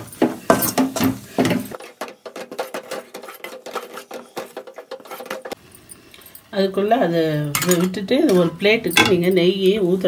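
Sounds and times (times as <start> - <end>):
steel ladle scraping a pan: 1.7 - 5.6.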